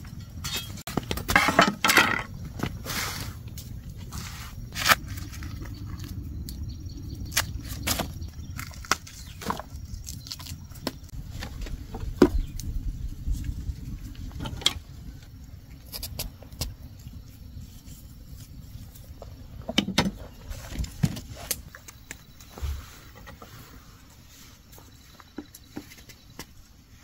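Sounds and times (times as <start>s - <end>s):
low rumble: 0.0s - 21.0s.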